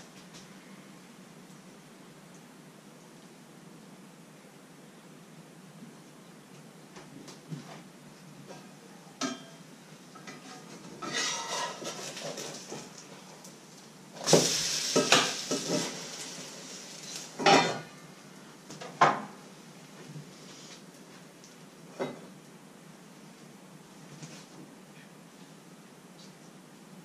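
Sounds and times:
pan sizzling: 9.9 - 20.7.

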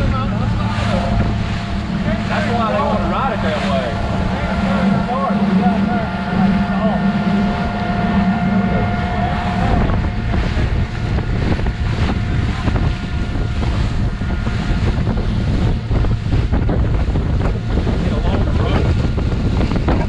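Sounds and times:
motorboat running: 0.0 - 20.0
wind buffeting microphone: 0.0 - 20.0.

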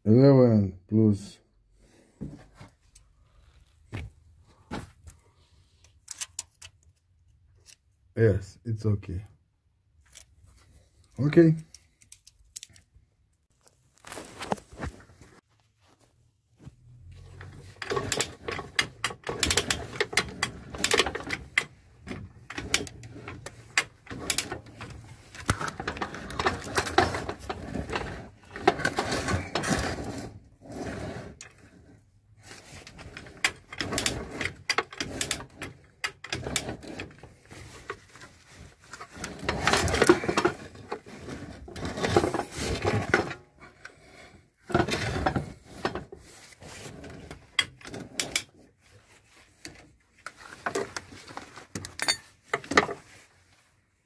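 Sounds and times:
metal parts and tools clanking: 17.2 - 31.9, 32.6 - 44.0, 44.7 - 48.6, 49.5 - 53.2.

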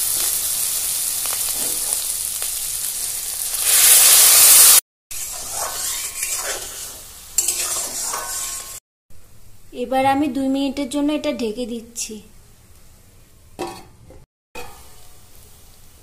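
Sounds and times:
paste sizzling in hot oil: 0.0 - 8.8
metal spatula stirring: 5.1 - 8.8.

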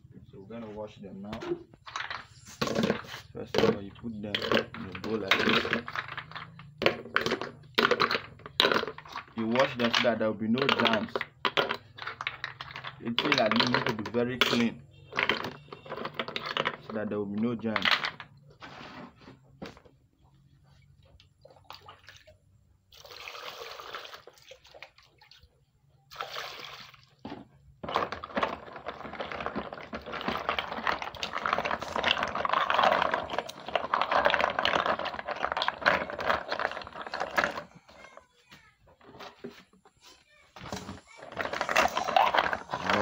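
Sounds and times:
water sloshing and splashing: 20.9 - 37.7, 41.2 - 43.0
water pouring into bowl: 21.6 - 25.5
snail shells clicking: 28.0 - 37.8.

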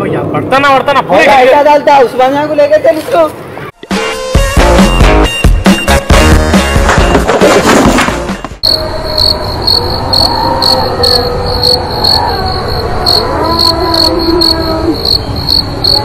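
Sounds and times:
music: 3.8 - 8.6
cricket chirping: 8.6 - 16.0.

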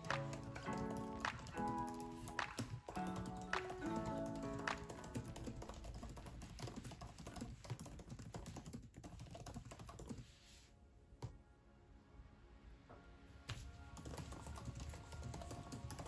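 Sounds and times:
fast typing on laptop keyboard: 0.0 - 10.2, 14.0 - 16.0.

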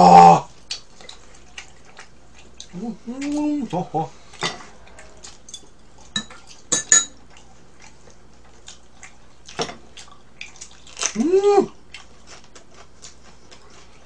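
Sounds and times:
person humming: 2.7 - 4.2, 11.2 - 11.8.

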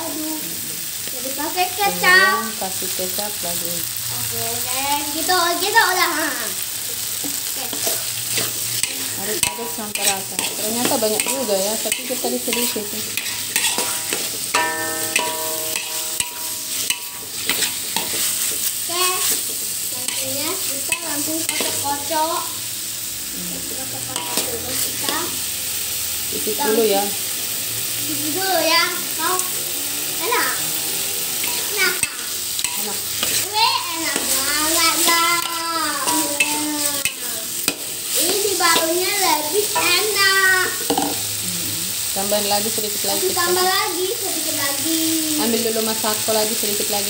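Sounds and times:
food sizzling: 0.0 - 47.0
wok ringing: 1.3 - 27.6, 28.4 - 41.4
metal spatula scraping wok: 7.7 - 22.4, 30.9 - 40.2.

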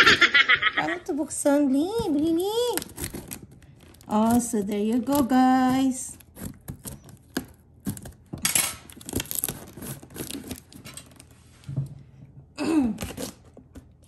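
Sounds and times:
tape tearing: 2.4 - 11.3, 13.0 - 14.0
scraping at cardboard box tape: 2.7 - 8.2, 8.9 - 11.3.

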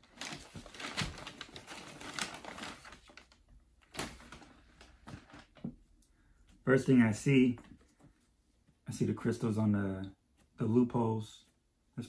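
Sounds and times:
tissue paper rustling: 0.0 - 5.6.

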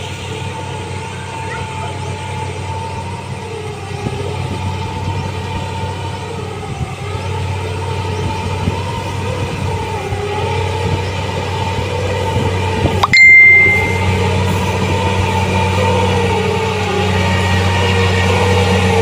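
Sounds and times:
combine harvester engine drone: 0.0 - 13.0, 13.8 - 19.0.

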